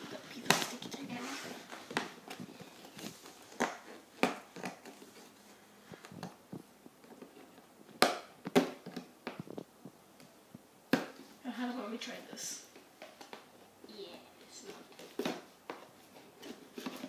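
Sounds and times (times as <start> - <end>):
cardboard box crackles and taps: 0.1 - 5.3, 6.0 - 10.3.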